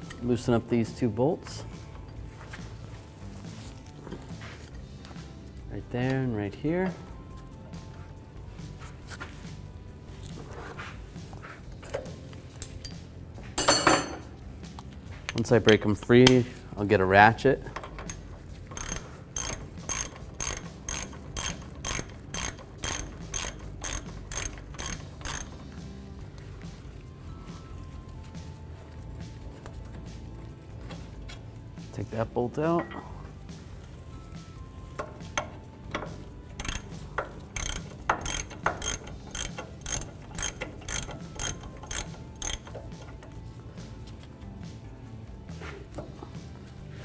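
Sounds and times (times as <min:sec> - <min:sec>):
ratchet pawl clicking: 0:17.7 - 0:25.8, 0:35.0 - 0:43.5.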